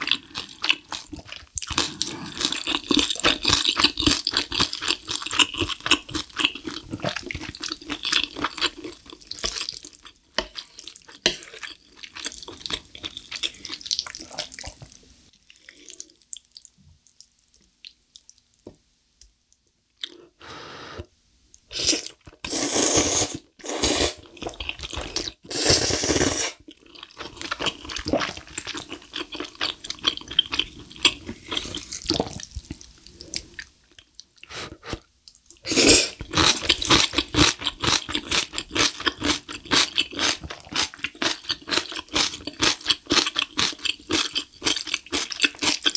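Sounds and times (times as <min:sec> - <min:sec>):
wet chewing: 0:36.2 - 0:45.9.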